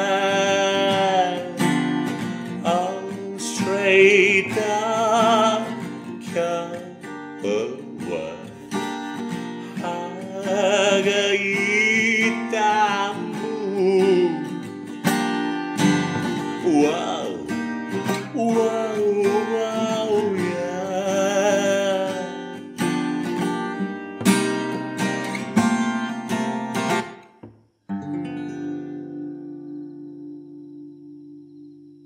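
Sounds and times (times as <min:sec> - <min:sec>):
person singing wordlessly: 0:00.0 - 0:09.0, 0:09.6 - 0:14.7, 0:15.8 - 0:22.8.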